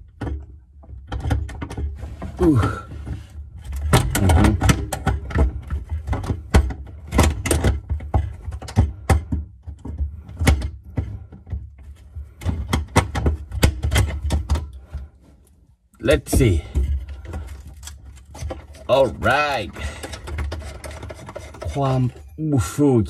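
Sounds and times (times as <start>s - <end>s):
hand tool clicks and knocks: 3.6s - 15.1s, 16.0s - 22.3s.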